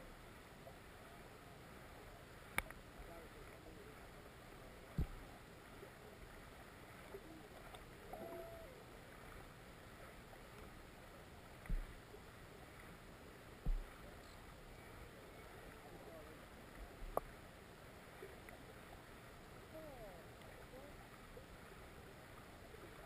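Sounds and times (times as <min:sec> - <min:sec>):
muffled underwater river hiss: 0:00.0 - 0:23.0
dull low thumps: 0:04.9 - 0:05.3, 0:11.6 - 0:12.0, 0:13.6 - 0:14.0.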